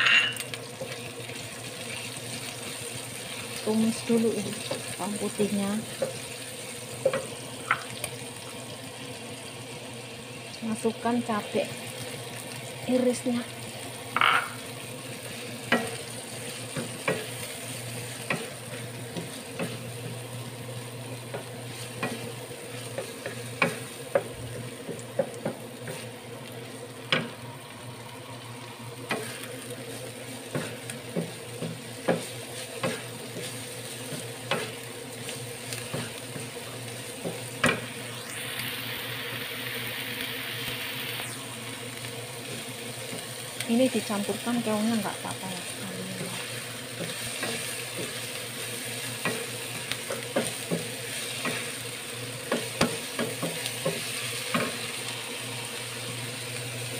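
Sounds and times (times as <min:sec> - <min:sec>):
chilies sizzling in hot oil: 0:00.0 - 0:56.9
range hood fan humming: 0:00.0 - 0:56.9.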